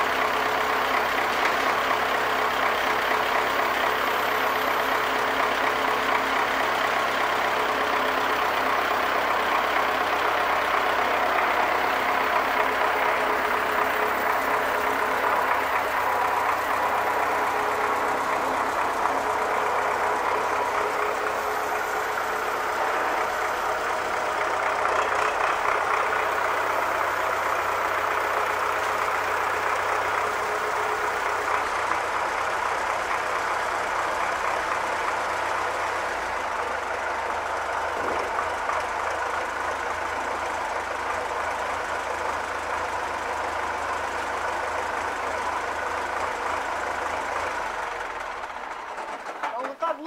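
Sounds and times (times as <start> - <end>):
diesel tractor engine idling: 0.0 - 50.0.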